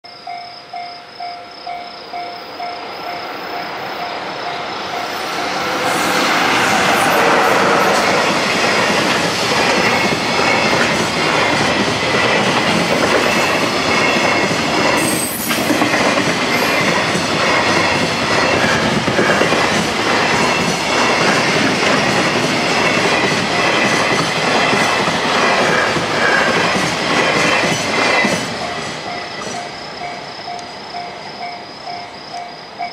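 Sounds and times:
crossing warning bell ringing: 0.0 - 9.0, 28.1 - 32.9
freight train passing: 0.3 - 32.9.

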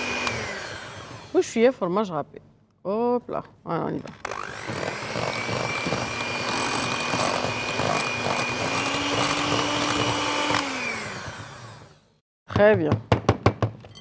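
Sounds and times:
electric hand mixer whining: 0.0 - 1.4, 4.2 - 12.2
beaters whisking batter in bowl: 4.6 - 10.6.

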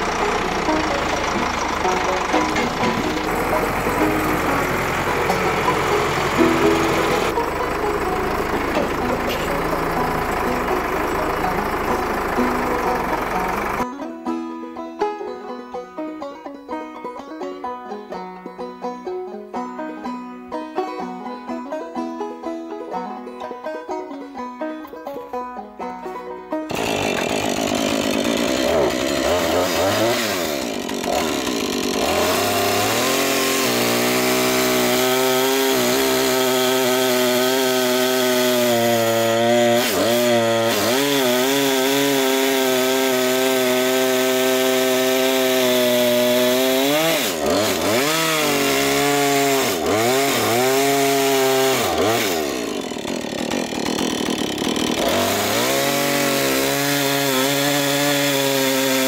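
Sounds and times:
chainsaw cutting wood: 0.0 - 13.9, 26.7 - 59.0.

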